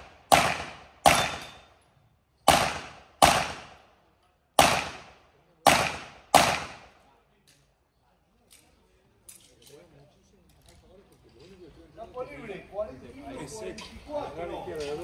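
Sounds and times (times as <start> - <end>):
gunshots with echo: 0.0 - 1.6, 2.5 - 3.8, 4.6 - 6.9.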